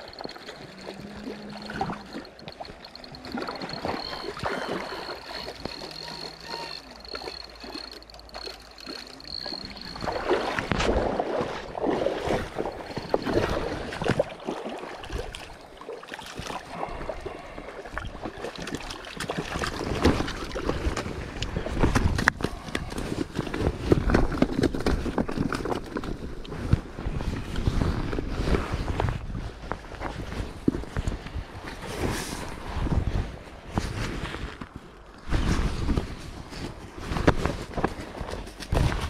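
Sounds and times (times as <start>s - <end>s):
fish splashing in water: 0.0s - 17.4s
fabric rubbing on microphone: 31.8s - 39.0s.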